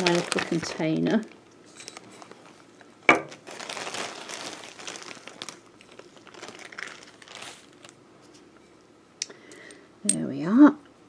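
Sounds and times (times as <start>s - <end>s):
packet rustling and crinkling: 0.0s - 8.4s.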